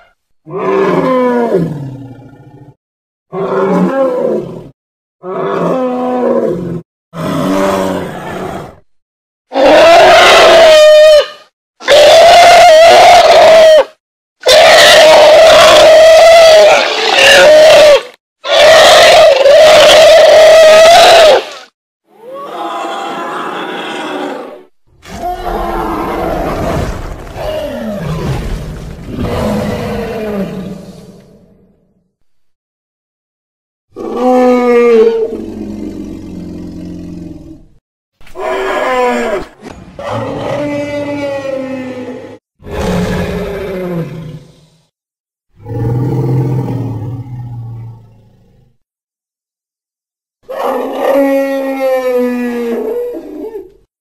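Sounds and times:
low creature calls: 22.2 - 31.3, 38.4 - 44.4, 50.4 - 53.9.

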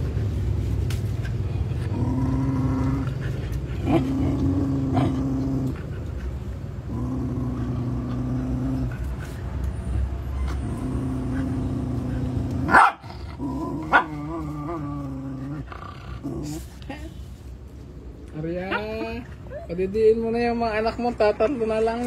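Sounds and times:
puppies growling: 1.6 - 16.9.

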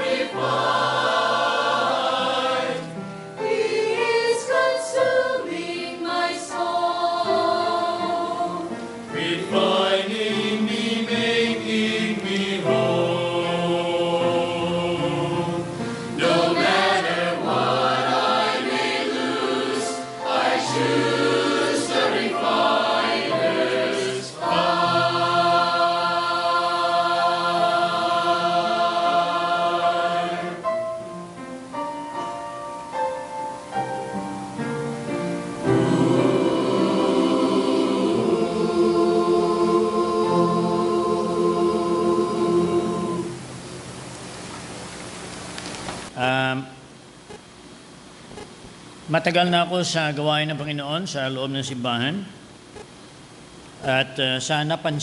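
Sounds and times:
choir singing in harmony: 0.0 - 31.0, 34.6 - 43.7
piano accompaniment: 0.0 - 43.9.

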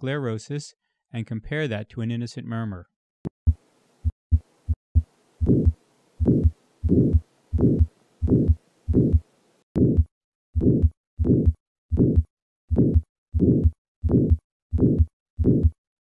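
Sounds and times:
heartbeat with murmur: 4.0 - 9.2, 9.8 - 15.8.

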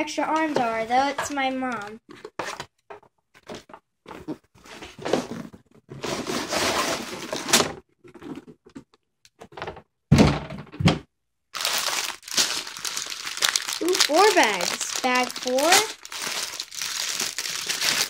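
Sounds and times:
plastic bags rustling: 11.6 - 18.0.

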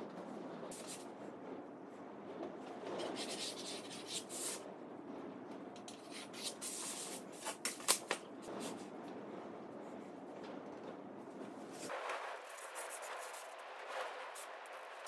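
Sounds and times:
pencil scratching along a ruler: 3.0 - 4.6, 12.5 - 13.5
hands rubbing on board: 11.8 - 15.0.

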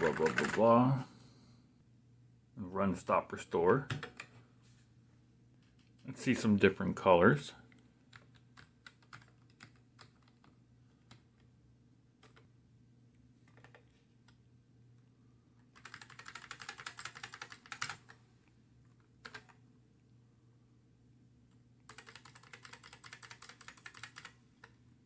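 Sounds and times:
rapid typing: 0.0 - 0.7, 8.1 - 11.2, 13.5 - 13.9, 15.7 - 18.2, 19.2 - 19.6, 21.9 - 24.8.

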